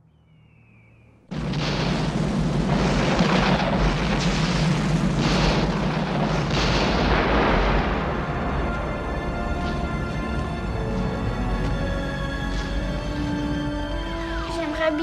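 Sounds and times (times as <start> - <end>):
volcano rumbling roar: 1.3 - 13.2
heavy blasts: 1.3 - 14.8
music: 7.7 - 15.0.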